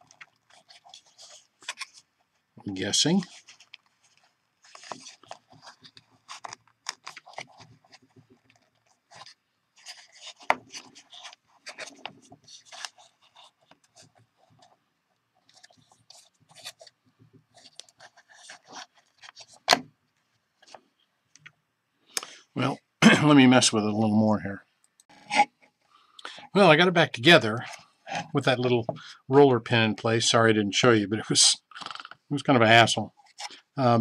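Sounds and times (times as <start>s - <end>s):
plastic clicks and scrapes: 0.0s - 2.1s, 3.2s - 14.8s, 15.4s - 21.6s.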